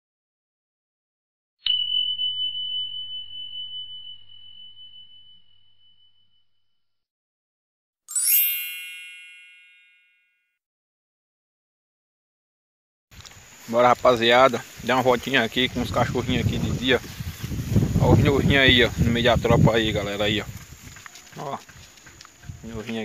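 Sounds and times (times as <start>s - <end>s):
bell-like ding: 1.6s - 6.4s, 8.1s - 10.6s
bright sparkly chime: 1.6s - 6.4s, 8.1s - 10.4s.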